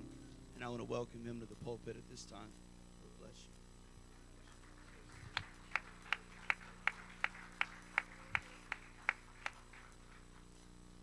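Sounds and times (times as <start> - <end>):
hands clapping: 4.1 - 10.5.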